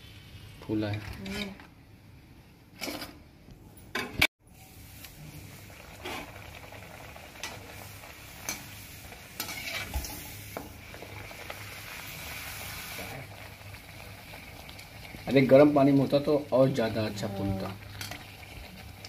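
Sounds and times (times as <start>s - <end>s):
oil sizzling while deep-frying: 0.0s - 1.0s, 4.4s - 19.0s.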